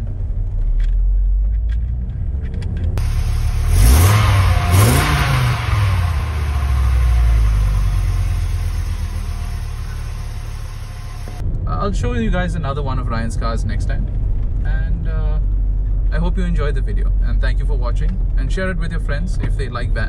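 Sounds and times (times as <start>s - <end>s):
engine rumble inside van cabin: 0.0s - 20.0s
engine revving and idling: 1.8s - 11.4s.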